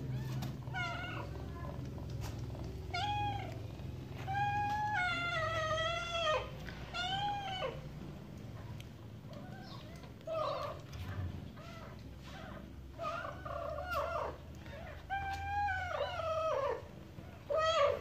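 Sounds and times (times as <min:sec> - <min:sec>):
cat meowing: 0:02.9 - 0:03.6, 0:04.2 - 0:07.8.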